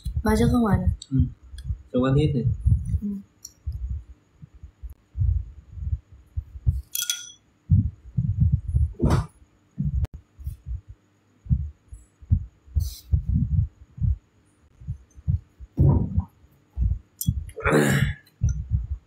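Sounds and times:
low dull thumps: 0.0s - 6.8s, 7.7s - 14.2s, 14.8s - 17.5s, 18.4s - 19.0s.

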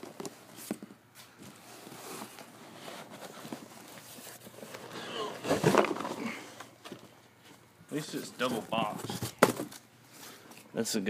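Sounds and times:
cardboard box clicks and knocks: 9.0s - 9.8s.

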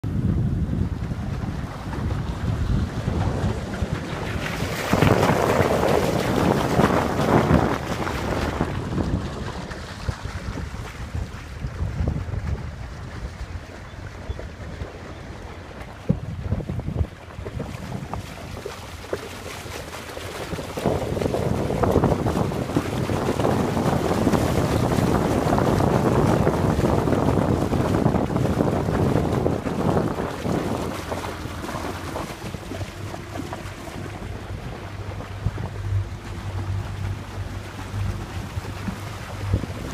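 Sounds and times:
water rushing past boat: 0.0s - 39.9s
wind buffeting microphone: 0.0s - 39.9s
steady low hum: 24.2s - 39.9s.

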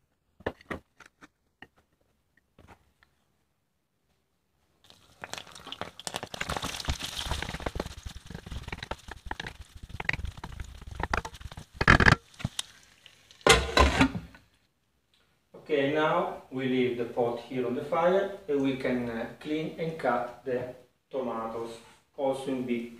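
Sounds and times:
wooden spoon stirring: 4.9s - 14.2s.

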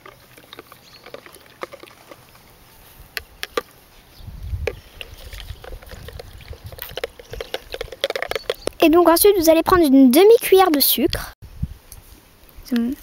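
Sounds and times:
spoon stirring water sloshing: 0.0s - 2.5s, 4.9s - 8.6s
wind rumble on microphone: 4.1s - 8.8s, 11.1s - 13.0s.

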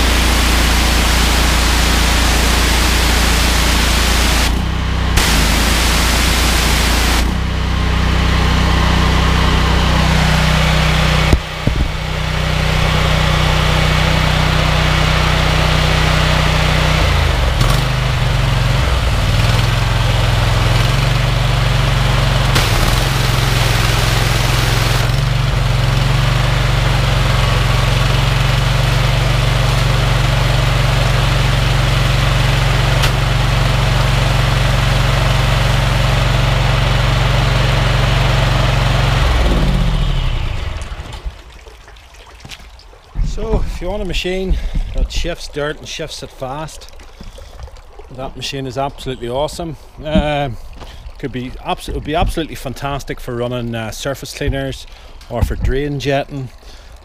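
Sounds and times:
pressure washer hiss: 0.0s - 4.5s, 5.2s - 7.4s, 22.2s - 25.5s
petrol engine running: 0.0s - 41.3s.

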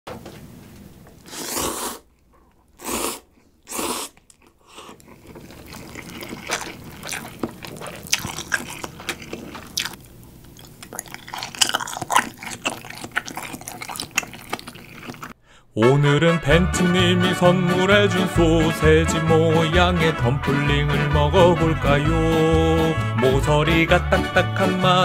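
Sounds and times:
loud slurping of noodles: 1.2s - 2.1s, 2.8s - 10.0s, 10.9s - 15.4s
close-up chewing with lip smacks: 2.1s - 15.4s.

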